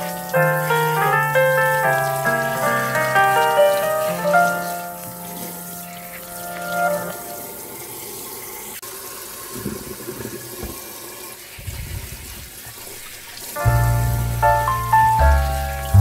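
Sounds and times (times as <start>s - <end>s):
background music: 0.0s - 7.5s, 13.6s - 16.0s.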